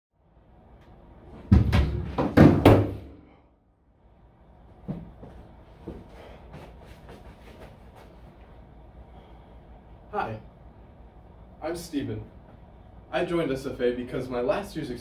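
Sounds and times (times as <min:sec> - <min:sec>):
shuffling: 0:04.8 - 0:08.7.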